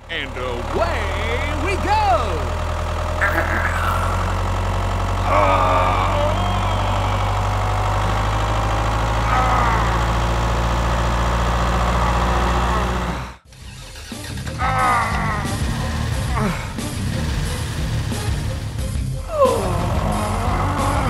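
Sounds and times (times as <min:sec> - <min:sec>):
tractor engine droning: 0:00.0 - 0:21.0.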